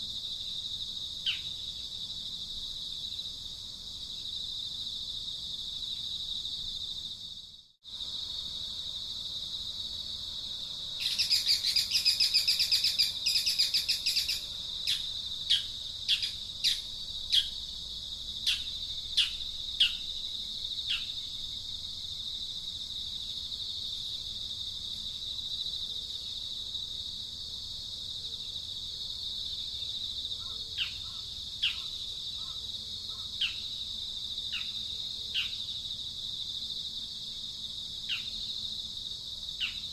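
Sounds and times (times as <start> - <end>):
high-pitched insect drone: 10.6 - 22.3
sharp downward-sweeping bird chirps: 11.0 - 17.5.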